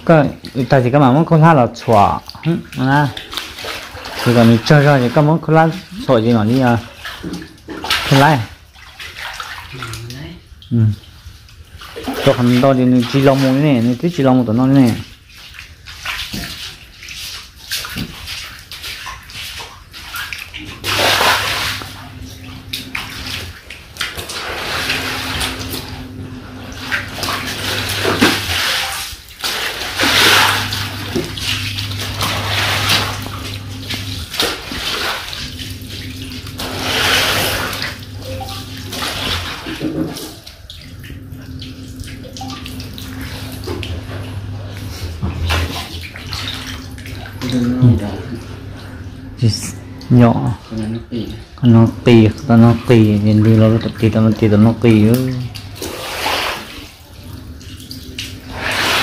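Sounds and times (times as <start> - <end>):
water sloshing on concrete floor: 0.0 - 59.0
low steady hum: 19.0 - 59.0.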